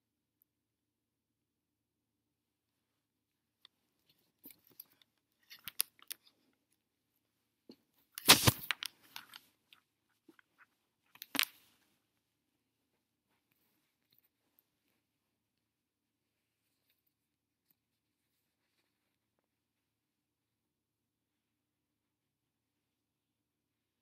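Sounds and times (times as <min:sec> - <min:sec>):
paper rustling and clicks: 0:08.2 - 0:09.4.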